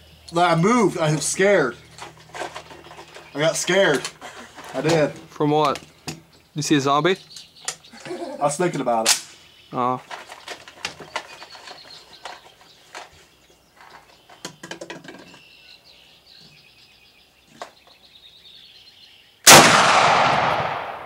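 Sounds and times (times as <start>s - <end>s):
rifle gunshot with echo: 19.4s - 21.0s.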